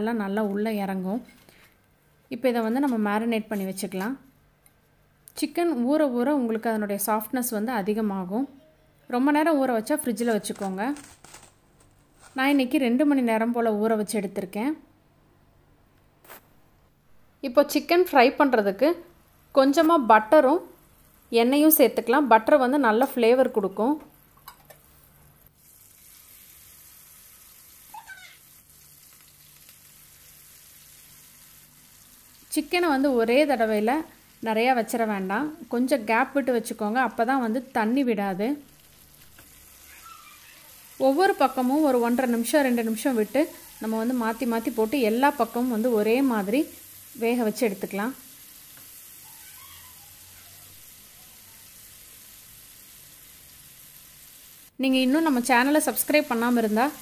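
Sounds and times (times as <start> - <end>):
chicken sizzling in a pan: 25.5 - 37.4, 38.6 - 57.0.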